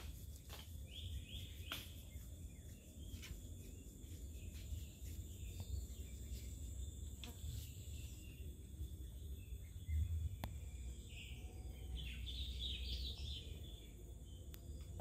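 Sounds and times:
bird chirps: 0.0s - 15.0s
insects buzzing: 0.0s - 15.0s
low rumble: 7.8s - 15.0s.

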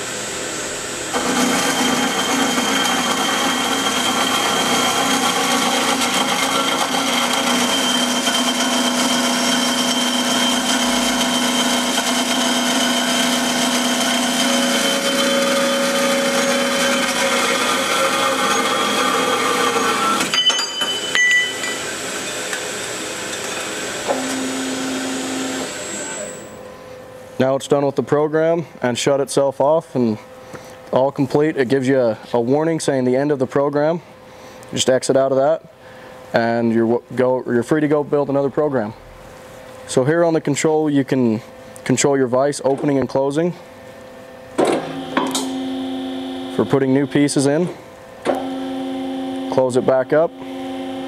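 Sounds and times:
low machine hum: 0.0s - 51.0s
band saw cutting metal tubing: 1.1s - 20.4s, 21.4s - 26.5s, 48.3s - 51.0s.

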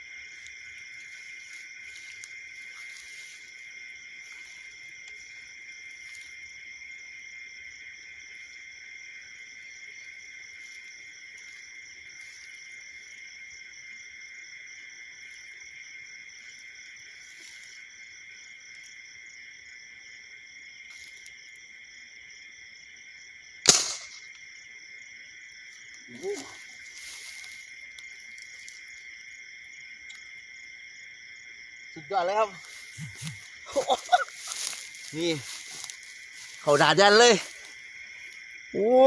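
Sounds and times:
night insects chirping: 0.0s - 39.0s
air rifle shot: 23.7s - 24.3s.

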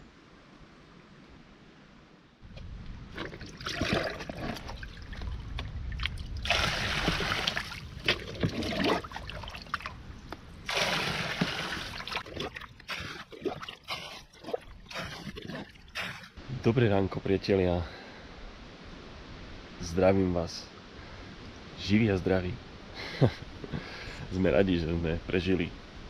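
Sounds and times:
water splashing and trickling: 2.5s - 16.4s.

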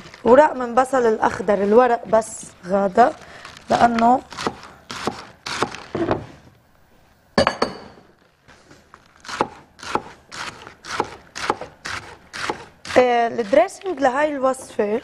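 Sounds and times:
knife chopping on cutting board: 9.2s - 13.0s.

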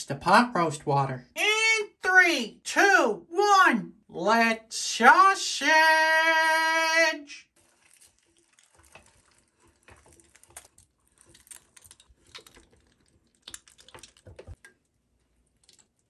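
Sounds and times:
wet squishes of meat stuffing: 7.5s - 16.0s.

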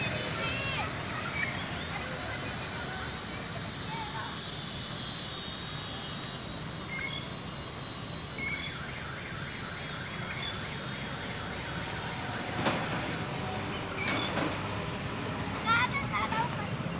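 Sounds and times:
toy drone whining: 0.0s - 12.6s.

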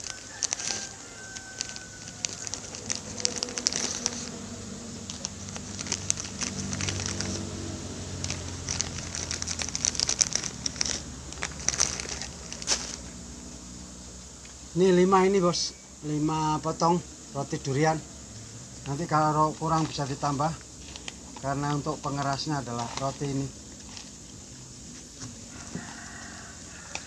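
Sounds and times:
plastic wrapping crinkling: 0.0s - 13.3s, 19.6s - 27.0s.

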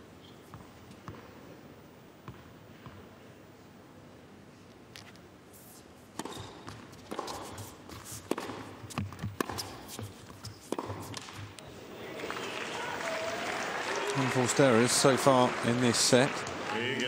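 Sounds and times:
racket striking tennis ball: 6.1s - 11.6s
shoe squeaks: 6.2s - 8.3s
ball bouncing: 8.3s - 11.6s.

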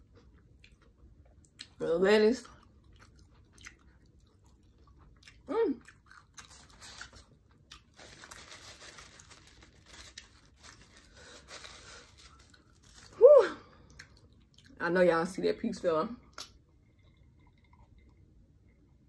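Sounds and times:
paper napkin rustling: 8.0s - 13.2s.

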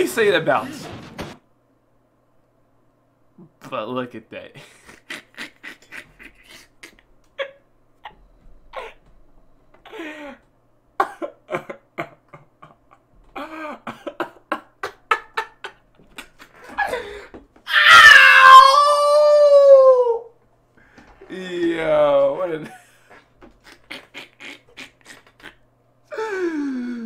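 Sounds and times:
man laughing: 4.5s - 9.1s, 11.0s - 17.2s, 21.2s - 27.0s
loud drawn-out yell: 17.7s - 20.3s.

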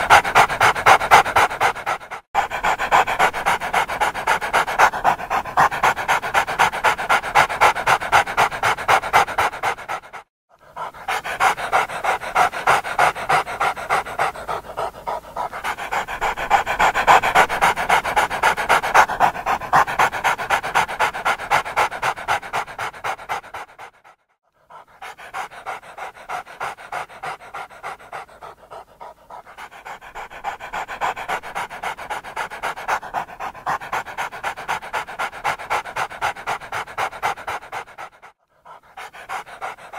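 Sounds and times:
dog panting: 0.0s - 39.9s.

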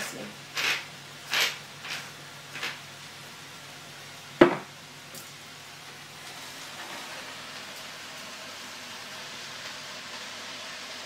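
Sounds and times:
seasoning grinder grinding: 0.0s - 2.8s
greens sizzling in a frying pan: 0.0s - 11.0s.

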